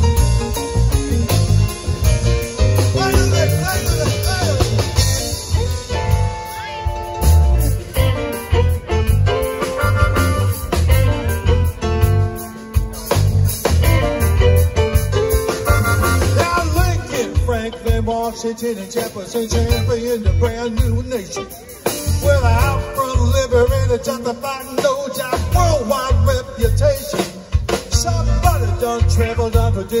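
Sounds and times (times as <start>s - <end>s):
bending guitar lead line: 0.0s - 23.6s
live rock band playing: 0.0s - 30.0s.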